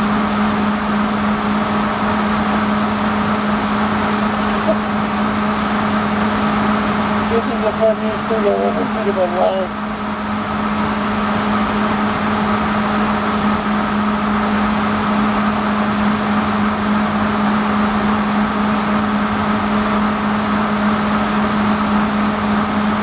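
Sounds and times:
machinery humming drone: 0.0 - 23.0.

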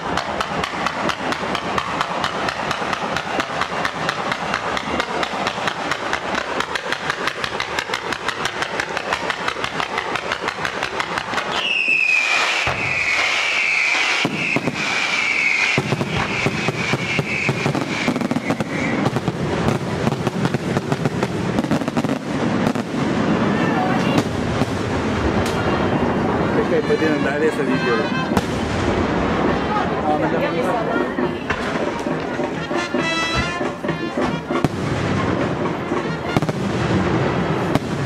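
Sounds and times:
firework bangs and crackles: 0.0 - 38.0
firework whistles: 1.2 - 19.8.

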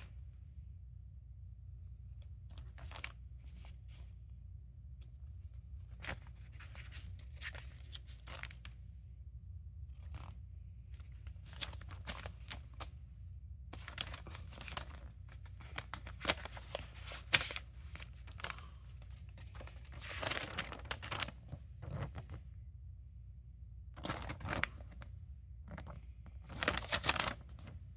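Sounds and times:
paper pages rustling: 2.2 - 4.3, 5.0 - 8.8, 9.9 - 13.0, 13.8 - 22.5, 24.0 - 27.9.

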